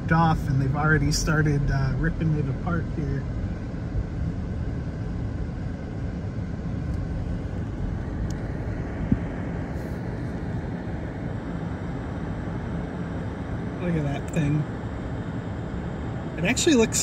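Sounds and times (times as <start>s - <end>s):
heavy machinery engine rumble: 0.0s - 10.7s.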